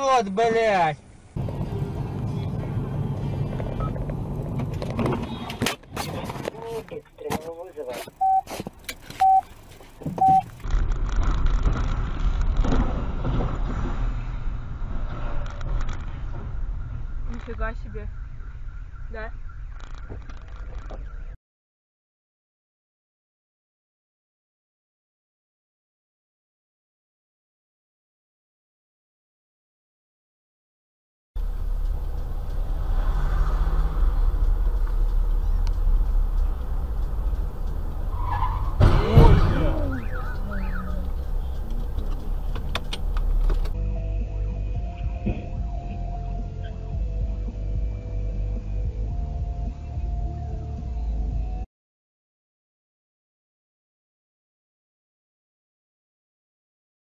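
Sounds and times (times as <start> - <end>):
car engine and tyre rumble: 0.0 - 21.4, 31.4 - 51.7
short electronic beeps: 8.2 - 8.5, 9.2 - 9.5, 10.1 - 10.5
tyres hissing on wet road: 31.9 - 38.8.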